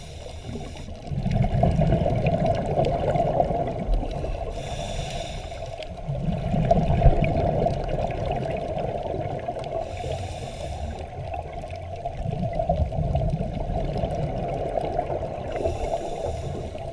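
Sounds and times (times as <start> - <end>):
hissing regulator inhale: 0.0 - 1.1, 4.1 - 6.0, 9.7 - 11.3, 15.5 - 16.9
bubbling exhales underwater: 1.0 - 4.6, 6.0 - 10.0, 11.0 - 16.9.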